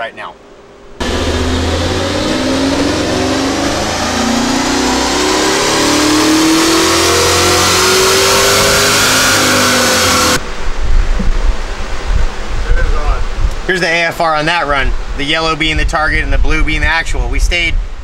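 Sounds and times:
engine revving at full throttle: 0:01.0 - 0:10.4.

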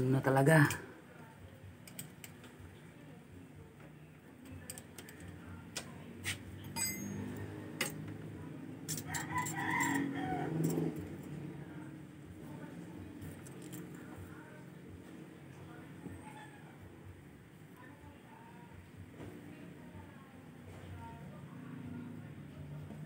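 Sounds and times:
rooster crowing: 0:08.9 - 0:10.9.

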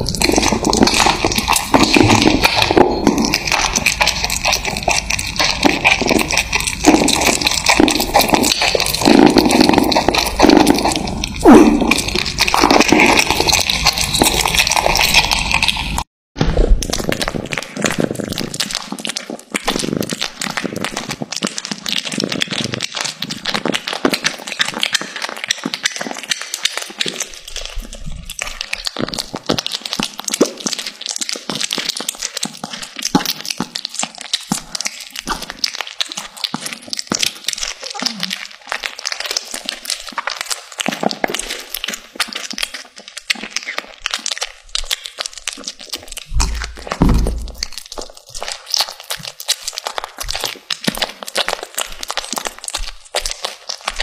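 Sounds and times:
low thumps: 0:46.3 - 0:47.6.

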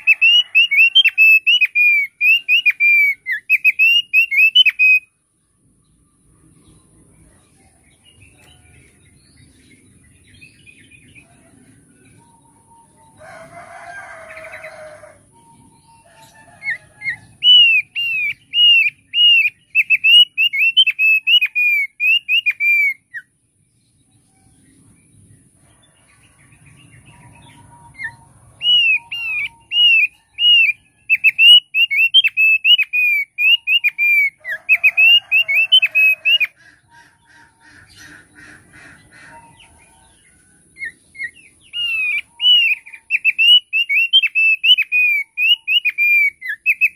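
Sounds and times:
bird singing whistled notes: 0:00.0 - 0:05.1, 0:15.3 - 0:23.3, 0:26.8 - 0:36.5, 0:40.8 - 0:46.9.

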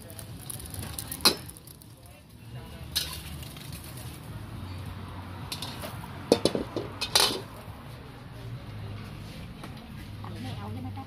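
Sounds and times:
utensils and dishes clattering: 0:02.9 - 0:04.0, 0:05.5 - 0:07.5.

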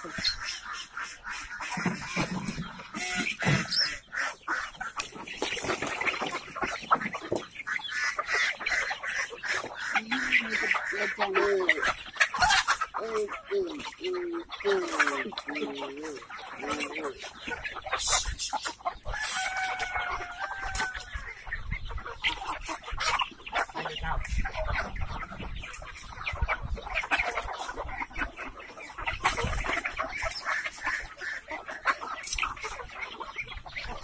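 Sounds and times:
chickens clucking: 0:00.0 - 0:34.0
rooster crowing: 0:19.2 - 0:21.0.

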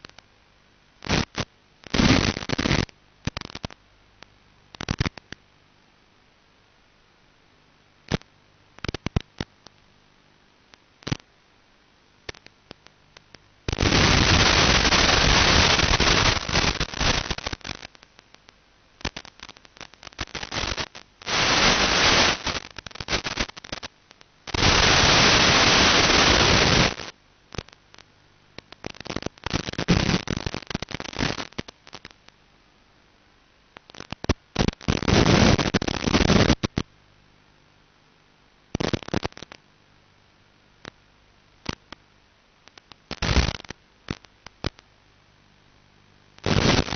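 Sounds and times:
radio receiver crackling: 0:00.0 - 0:00.3, 0:01.0 - 0:05.5, 0:08.0 - 0:09.9, 0:10.7 - 0:11.4, 0:12.2 - 0:32.4, 0:33.7 - 0:37.0, 0:38.7 - 0:39.6, 0:40.8 - 0:41.0, 0:41.6 - 0:45.0, 0:45.8 - 0:46.9
loud hiss bursts: 0:13.8 - 0:17.6, 0:20.3 - 0:23.6, 0:24.5 - 0:27.0.

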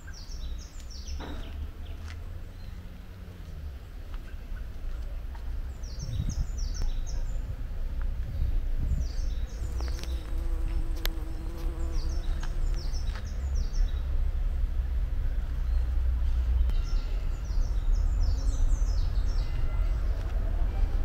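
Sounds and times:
small songbird singing: 0:00.0 - 0:03.0, 0:03.6 - 0:07.7, 0:08.3 - 0:14.2, 0:15.5 - 0:20.1
steady low rumble: 0:01.6 - 0:16.8
flying insect buzzing: 0:09.6 - 0:13.0.

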